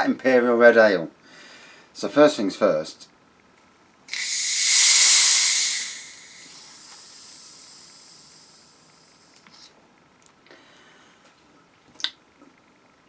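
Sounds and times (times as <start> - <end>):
gas hissing from bottle: 4.1 - 9.4.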